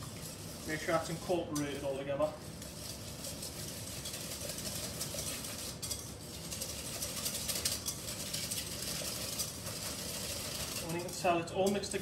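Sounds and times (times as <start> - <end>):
whisk clattering in glass bowl: 2.6 - 12.0.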